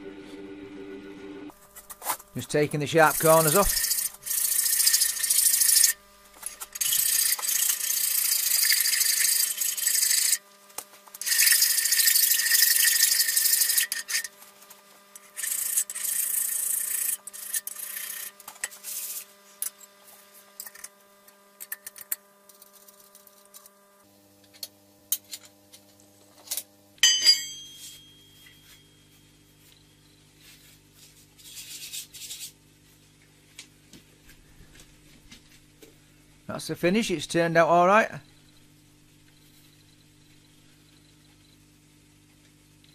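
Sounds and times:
faint steady hum: 0.0 - 42.9
hand file scraping metal: 3.0 - 6.0, 6.6 - 10.4, 11.2 - 14.3, 15.2 - 19.3
sharp metal clank: 27.0 - 28.6.

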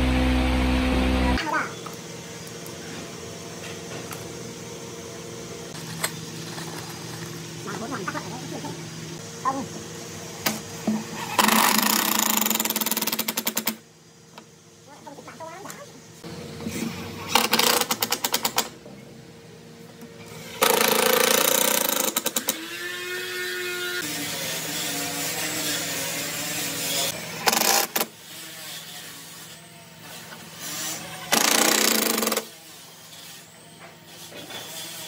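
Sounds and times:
drill rapid clicking: 31.3 - 32.5.

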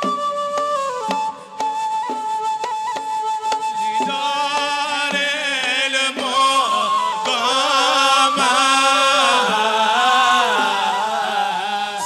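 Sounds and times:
men singing: 3.8 - 12.0.

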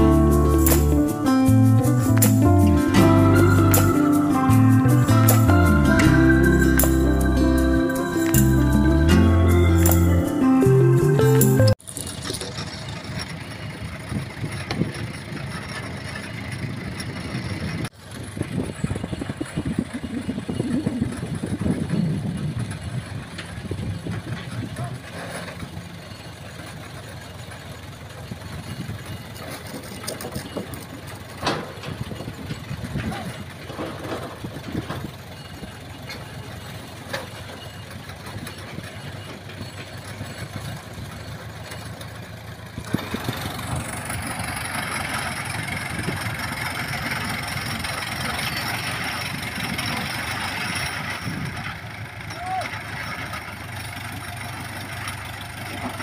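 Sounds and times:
winch engine running: 11.8 - 56.0.

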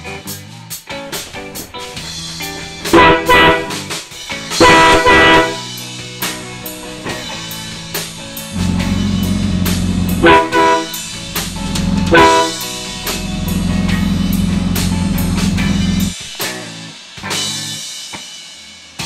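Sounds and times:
rock music: 0.0 - 18.1
air horn blasts: 2.2 - 16.2.

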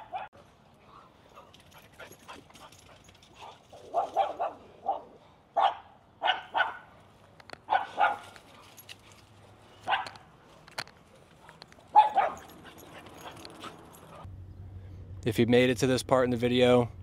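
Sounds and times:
dogs barking: 0.0 - 0.3, 3.4 - 6.9, 7.6 - 8.4, 9.8 - 10.3, 11.4 - 14.3.

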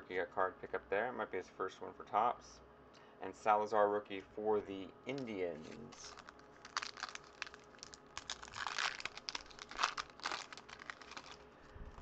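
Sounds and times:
foil wrapper crinkling and tearing: 5.1 - 12.0.

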